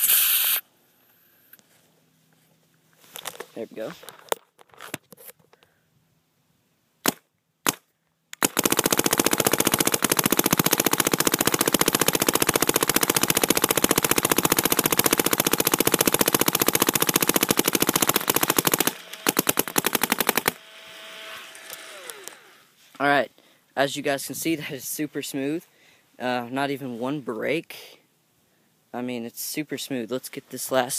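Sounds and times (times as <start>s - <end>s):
paintball marker firing: 7.0s - 20.6s.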